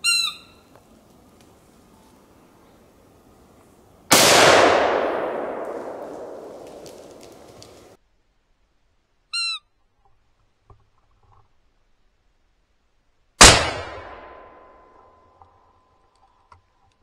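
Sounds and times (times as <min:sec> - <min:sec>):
rifle shot echoing: 0:04.1 - 0:08.0, 0:13.4 - 0:14.8.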